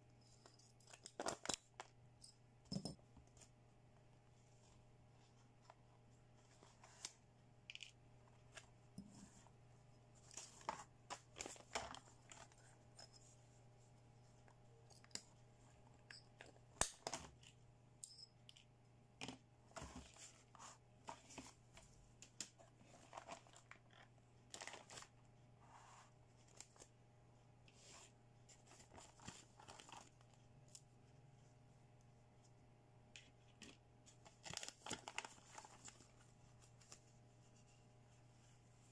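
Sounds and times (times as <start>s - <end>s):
plastic packaging crinkling and tearing: 34.4s - 36.0s.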